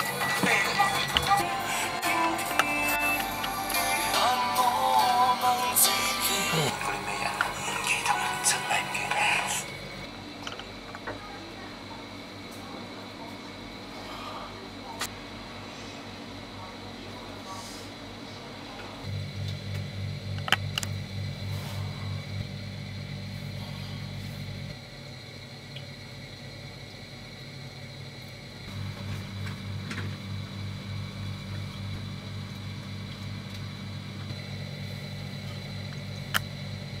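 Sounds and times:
motor humming with throbbing pulse: 19.0 - 25.2.

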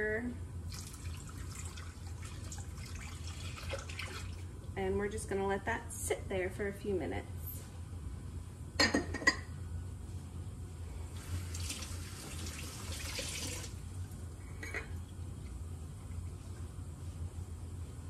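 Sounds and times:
water splashing into sink: 0.7 - 4.4, 11.5 - 13.8.

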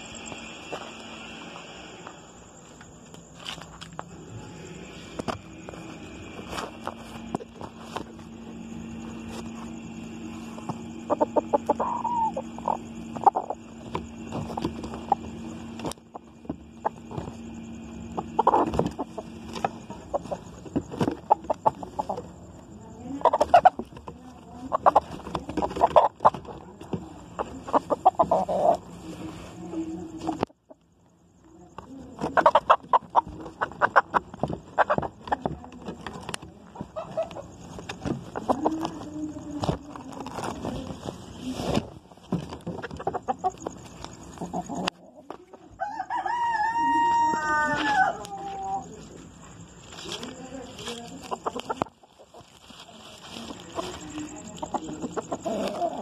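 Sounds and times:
rustling: 2.6 - 30.4, 33.2 - 45.5, 47.6 - 56.0
rooster clucking: 6.3 - 29.1, 32.1 - 41.3, 42.3 - 56.0
rooster crowing: 45.7 - 49.0.

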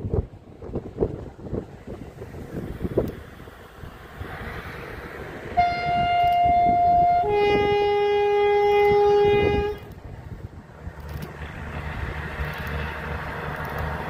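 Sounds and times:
wind on microphone: 0.0 - 14.0
locomotive two-tone horn: 5.6 - 10.0.

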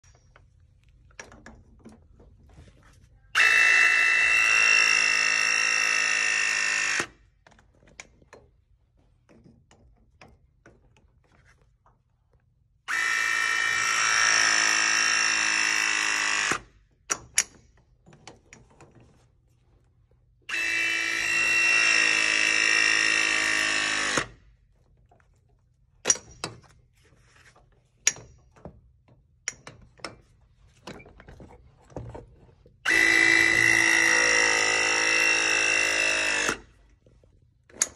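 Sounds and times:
press tool motor whine: 3.4 - 7.1, 32.9 - 36.6.

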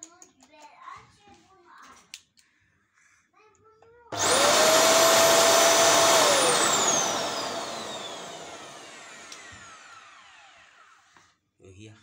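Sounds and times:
vacuum cleaner motor whining: 4.1 - 11.0.

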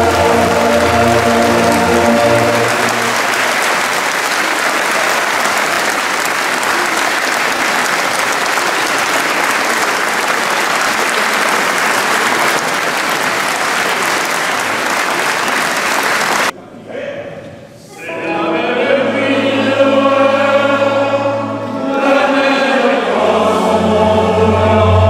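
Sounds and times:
choir holding chord: 0.0 - 5.5, 18.0 - 25.0
audience applauding: 0.0 - 16.5.

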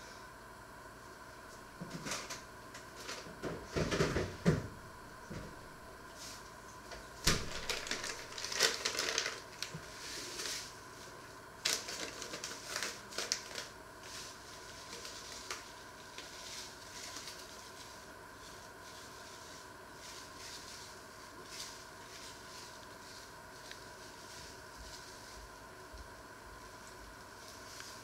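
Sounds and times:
paper packet crinkling: 7.2 - 10.8, 11.6 - 25.8.

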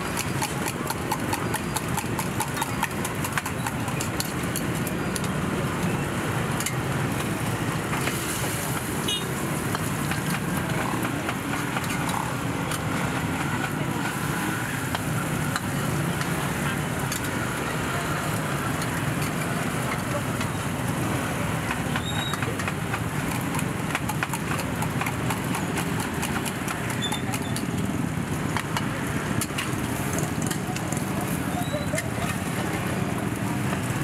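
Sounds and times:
crowd chatter: 0.0 - 34.0
metal utensils clicking on woks: 0.1 - 5.9, 6.5 - 21.0, 21.6 - 34.0
food deep-frying in oil: 0.1 - 11.8.

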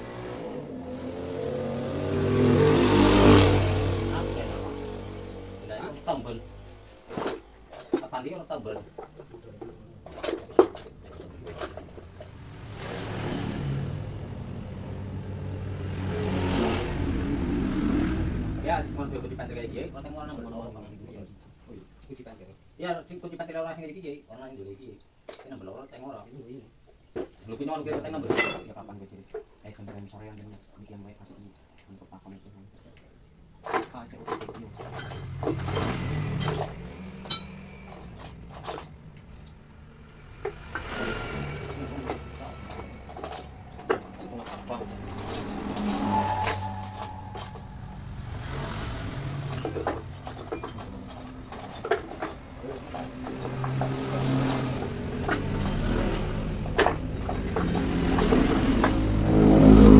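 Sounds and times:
motorcycle engine revving: 0.0 - 7.0, 11.9 - 20.8, 34.9 - 59.9
low rumble: 12.1 - 21.1, 42.3 - 51.4
metal hand tools clinking: 33.6 - 39.5, 41.6 - 59.4.

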